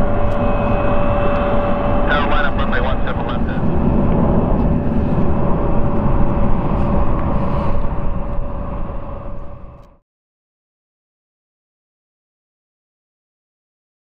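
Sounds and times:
jet engines rumbling: 0.0s - 10.0s
steady hum: 0.0s - 10.0s.

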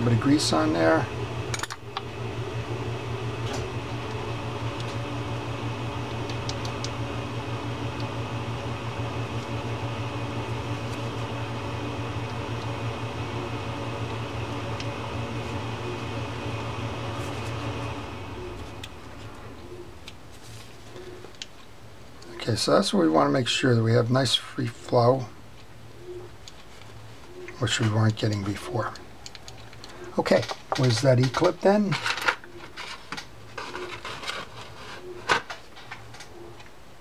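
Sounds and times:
fan humming with low drone: 0.0s - 37.0s
faint clicks of reel parts: 26.4s - 34.5s.

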